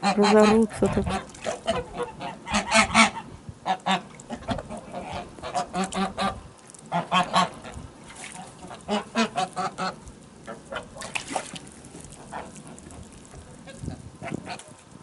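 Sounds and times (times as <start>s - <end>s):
geese honking: 0.0s - 7.8s, 8.4s - 11.0s.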